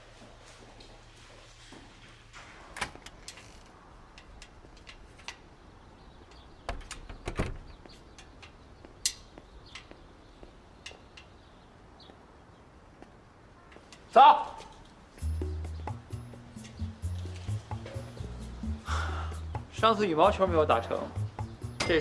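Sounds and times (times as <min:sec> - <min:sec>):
door opening and shutting: 0:02.4 - 0:03.8, 0:06.6 - 0:07.9
door thuds: 0:06.7 - 0:07.8.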